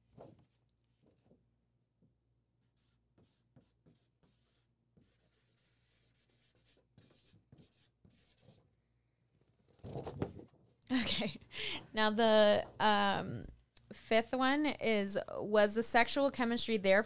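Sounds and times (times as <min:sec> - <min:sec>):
pen scratching on card: 0:02.6 - 0:08.6.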